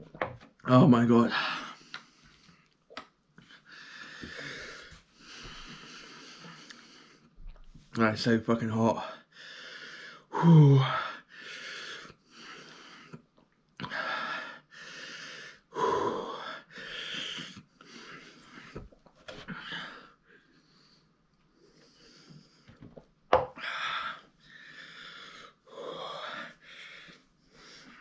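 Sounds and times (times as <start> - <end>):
man breathing hard and wheezing: 3.4 - 7.4, 9.2 - 22.8, 23.5 - 28.0
man groaning: 10.4 - 11.0.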